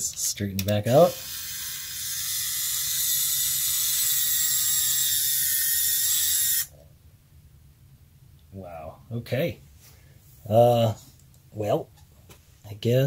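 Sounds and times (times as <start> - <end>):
small electric motor whining: 1.1 - 6.7.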